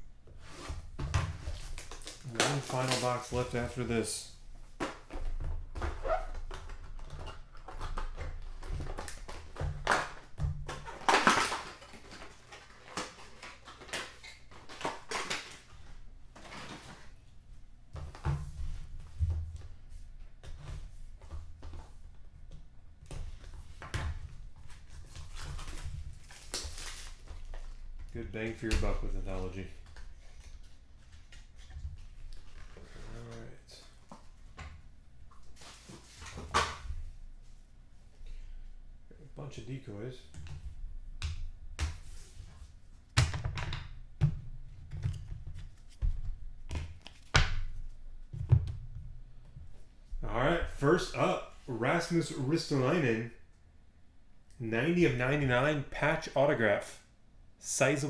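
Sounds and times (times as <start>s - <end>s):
plastic wrap crinkling: 1.5s - 4.1s, 24.8s - 27.9s.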